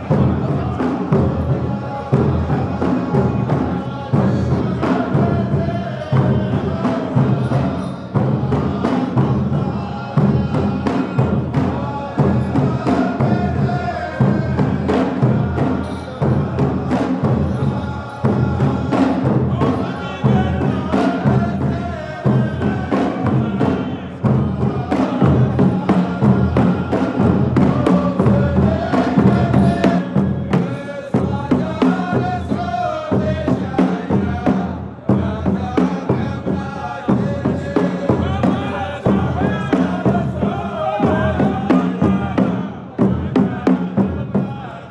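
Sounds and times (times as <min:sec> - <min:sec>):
frame drums beating: 0:00.0 - 0:44.9
men chanting: 0:00.0 - 0:44.9.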